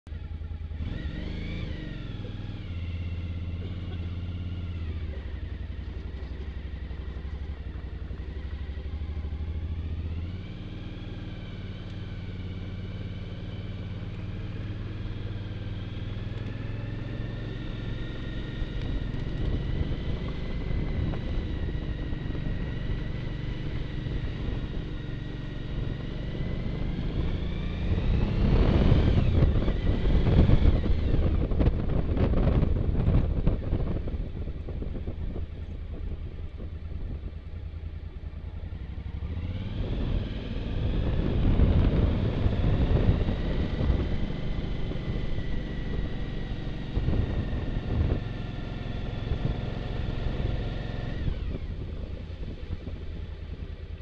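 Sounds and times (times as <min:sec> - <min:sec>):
motorcycle engine running: 0:00.1 - 0:54.0
wind buffeting microphone: 0:16.1 - 0:54.0.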